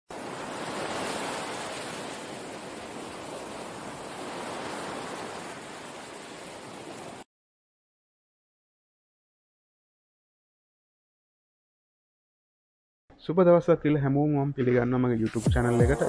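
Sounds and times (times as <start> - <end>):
rushing water: 0.1 - 7.3.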